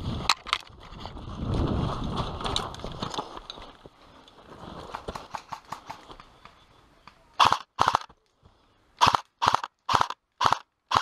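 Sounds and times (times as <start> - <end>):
airsoft rifle bursts: 7.4 - 8.1, 9.0 - 11.0.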